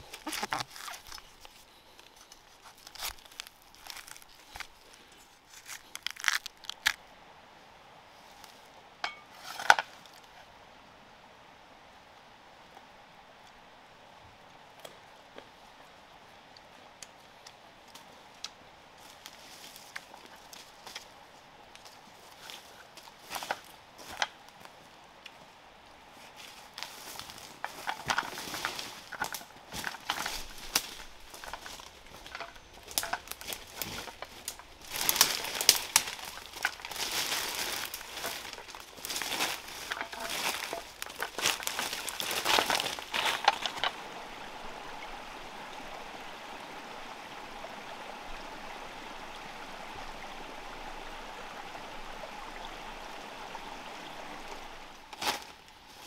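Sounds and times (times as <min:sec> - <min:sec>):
crinkling and crackling clicks: 0:00.0 - 0:07.0, 0:21.8 - 0:24.4, 0:26.8 - 0:44.0
running water: 0:14.4 - 0:56.0.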